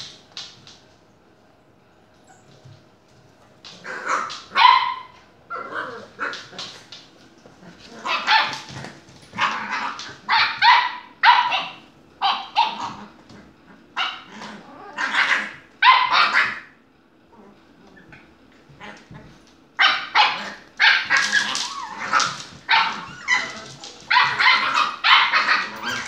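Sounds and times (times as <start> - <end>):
puppy barking: 3.8 - 6.6, 8.0 - 8.8, 9.4 - 13.1, 14.0 - 16.8, 19.8 - 26.0.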